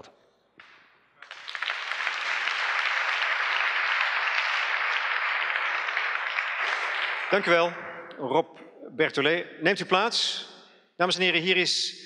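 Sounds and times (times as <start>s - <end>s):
audience applauding: 0.6s - 7.9s.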